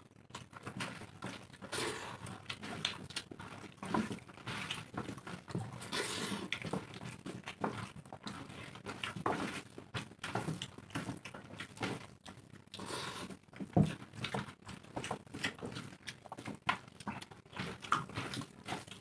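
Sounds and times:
chewing and mouth sounds: 0.1 - 19.0.

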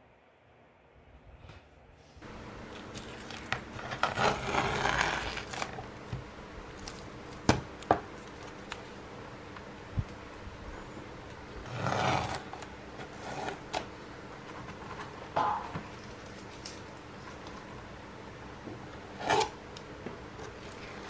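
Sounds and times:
canvas scraping on wooden table: 3.8 - 5.7, 11.6 - 13.7.

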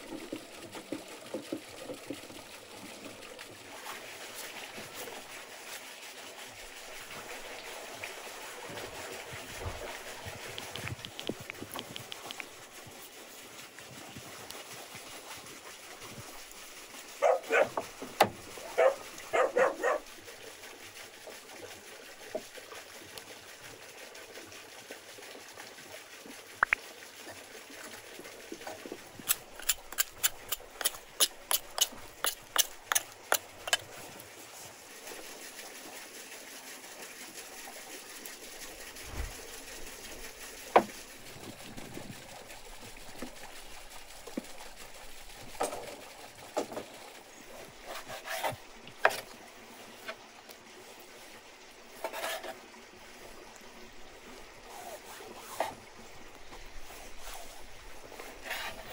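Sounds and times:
dog barking: 17.2 - 17.8, 18.7 - 20.1.

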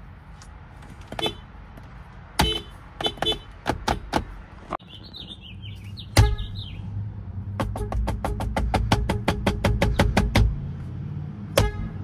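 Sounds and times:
car horn short beeps: 2.4 - 3.5
birds chirping: 4.2 - 7.0.

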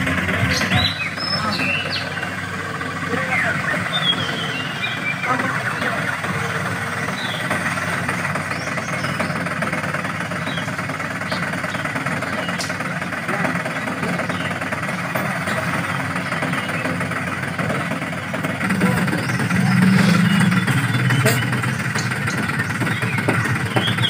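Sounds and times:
truck engine running: 0.0 - 24.0.

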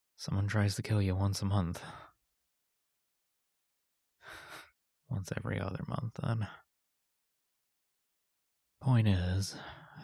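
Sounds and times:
man speaking: 0.2 - 1.9, 5.1 - 6.6, 8.8 - 10.0.

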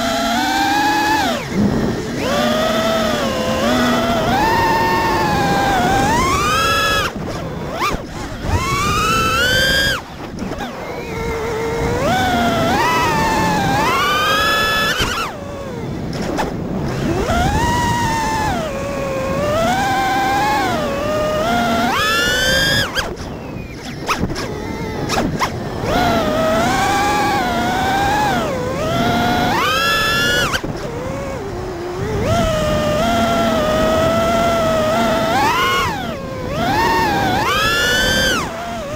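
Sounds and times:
quadcopter motors whining: 0.0 - 38.9
sharp clicks: 21.5 - 27.3.

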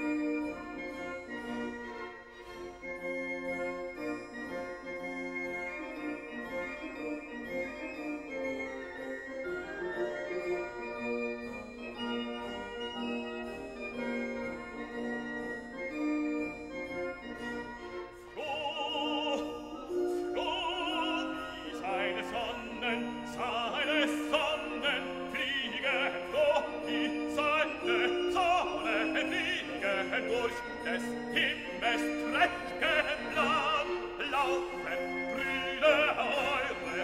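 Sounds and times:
operatic singing voice: 18.3 - 37.0.

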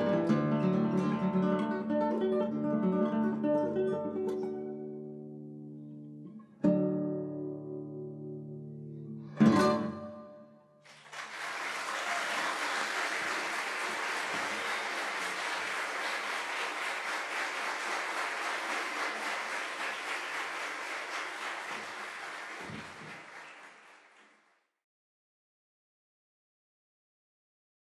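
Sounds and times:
audience applause: 10.9 - 24.5.

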